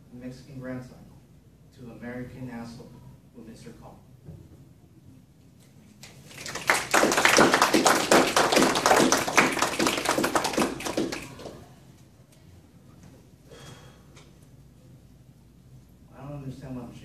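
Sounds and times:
small audience clapping: 6.0 - 11.7.

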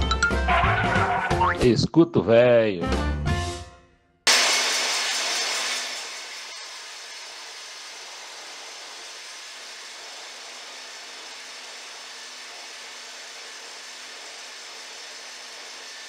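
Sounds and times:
table saw whirring: 4.3 - 16.0.

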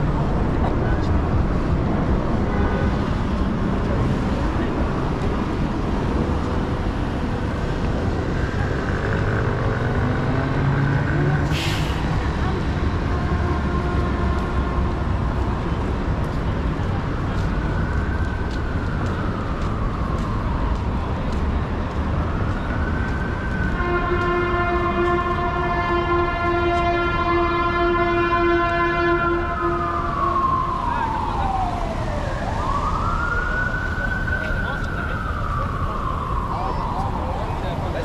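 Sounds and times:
city traffic noise: 0.0 - 38.0
emergency vehicle siren wailing: 0.0 - 38.0
long steady horn blast: 2.4 - 3.4, 9.8 - 15.8, 23.6 - 30.8.

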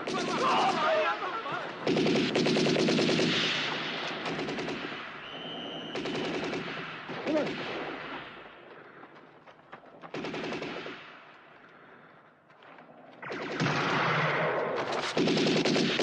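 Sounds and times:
machine-gun fire bursts: 0.0 - 8.7, 10.0 - 11.6, 13.2 - 16.0
man shouting: 0.1 - 1.6
high whistling tone: 5.2 - 6.0.

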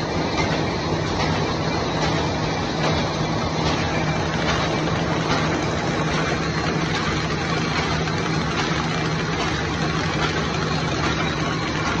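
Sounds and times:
paper machine running: 0.0 - 12.0.

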